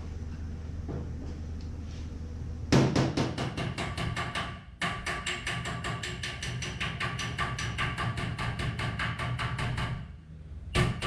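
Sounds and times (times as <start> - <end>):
low steady hum: 0.0 - 3.8, 9.9 - 11.0
hammer tapping sheet metal: 2.8 - 10.1, 10.8 - 11.0.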